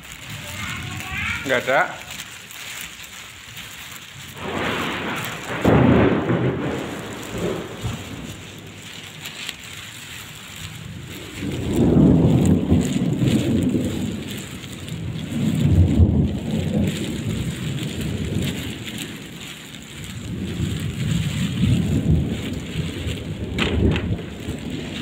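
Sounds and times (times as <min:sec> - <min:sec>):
heavy rain falling: 0:00.0 - 0:25.0
rolling thunder: 0:04.3 - 0:25.0.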